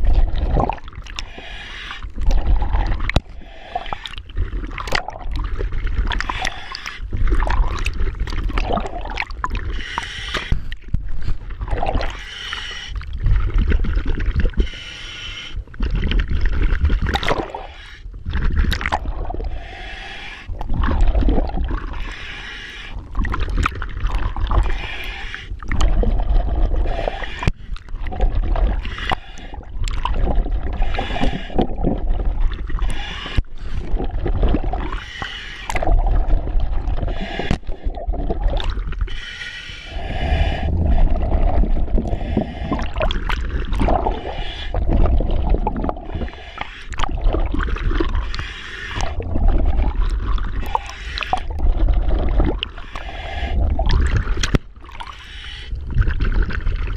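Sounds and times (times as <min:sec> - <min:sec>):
exhaust bubbles rumbling: 0:00.0 - 0:01.2, 0:20.5 - 0:22.0, 0:29.7 - 0:32.8, 0:33.8 - 0:35.0, 0:35.7 - 0:39.0, 0:39.9 - 0:48.3, 0:49.0 - 0:52.8
regulator hissing inhalations: 0:09.7 - 0:10.7, 0:19.6 - 0:20.5.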